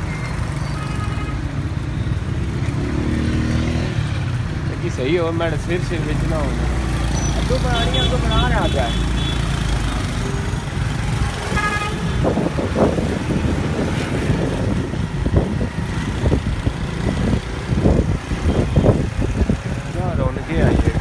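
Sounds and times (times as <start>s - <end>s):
vehicle horn toot: 7.7s - 9.4s, 11.5s - 12.2s
wind noise: 11.1s - 21.0s.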